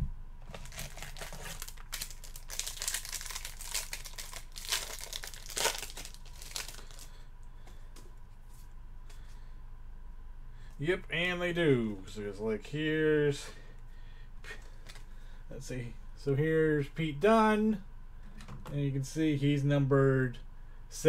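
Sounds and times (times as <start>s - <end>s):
wrapping crinkling and tearing: 0.4s - 7.2s.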